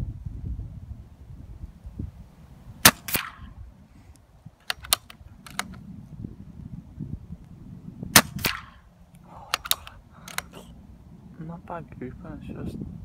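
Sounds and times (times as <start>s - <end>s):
air rifle shot crack: 2.8s - 3.6s, 8.1s - 8.9s, 9.5s - 10.7s
metallic clicks of rifle action: 4.6s - 5.8s, 9.5s - 10.7s.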